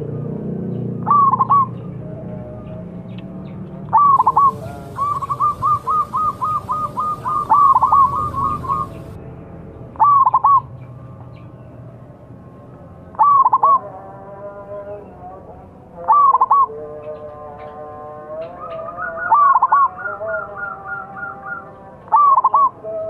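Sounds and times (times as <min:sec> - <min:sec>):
dove cooing: 0:01.0 - 0:01.8, 0:03.9 - 0:09.2, 0:10.0 - 0:10.6, 0:13.2 - 0:13.9, 0:16.1 - 0:16.7, 0:18.6 - 0:22.8.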